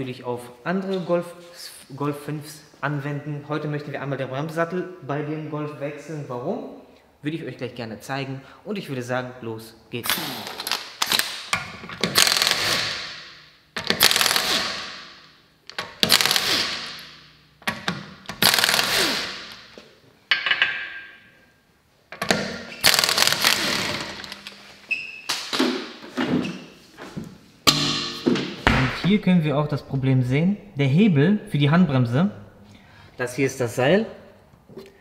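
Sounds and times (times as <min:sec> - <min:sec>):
impact wrench hammering: 0:11.4 - 0:15.2, 0:15.8 - 0:21.1, 0:27.7 - 0:29.0.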